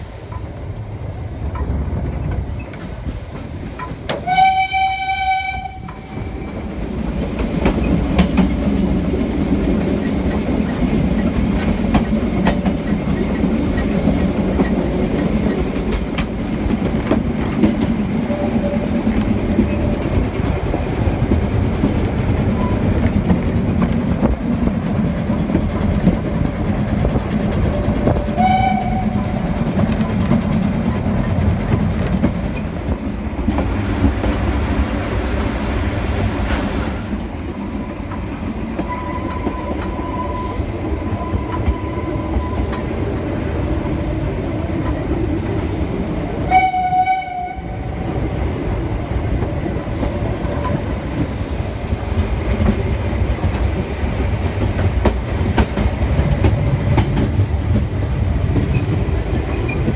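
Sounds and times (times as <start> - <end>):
steam train wheels clattering on rails: 0.0 - 59.9
steam train whistle: 4.1 - 6.6, 28.3 - 29.4, 46.4 - 47.9.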